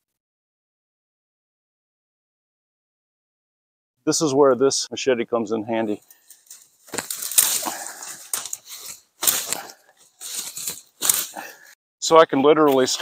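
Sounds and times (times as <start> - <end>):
leaves rustling: 5.9 - 11.7
machete chopping stems: 6.9 - 11.5.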